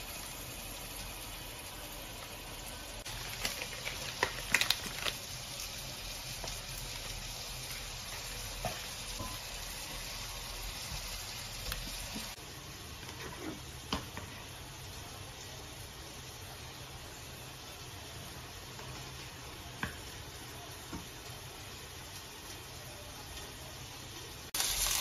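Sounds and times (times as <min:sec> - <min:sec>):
saucepan simmering hiss: 0:00.0 - 0:25.0.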